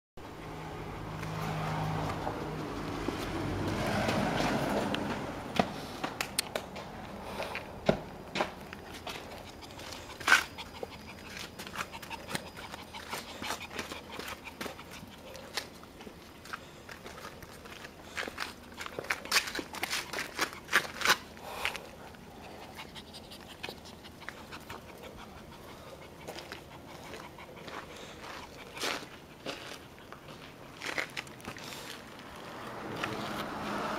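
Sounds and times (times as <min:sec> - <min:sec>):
vehicle passing: 0:00.2 - 0:33.9
puppy panting softly: 0:08.8 - 0:30.6.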